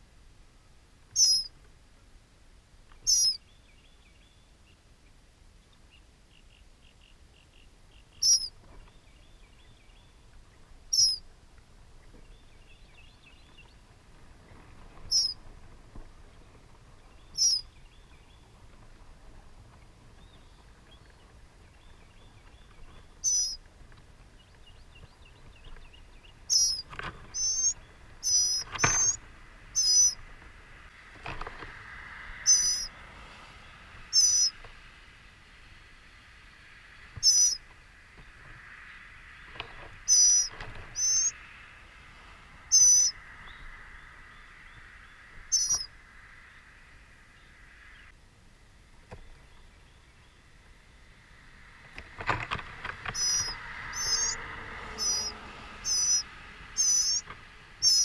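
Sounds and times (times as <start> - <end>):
short high bird calls: 1.2 - 1.6, 3.0 - 4.4, 6.3 - 8.6, 10.9 - 11.3, 15.1 - 15.4, 17.2 - 17.8, 23.1 - 23.6, 26.4 - 30.2, 32.4 - 33.0, 34.1 - 34.6, 37.2 - 37.6, 40.1 - 41.4, 42.7 - 46.0, 53.1 - 58.0
faint rapid trilling: 8.2 - 8.6, 10.9 - 11.2, 15.0 - 15.4, 17.3 - 17.7, 23.2 - 23.6, 26.4 - 30.2, 32.4 - 32.9, 34.1 - 34.5, 37.2 - 37.6, 40.1 - 41.4, 42.7 - 43.2, 45.5 - 45.9, 52.0 - 58.0.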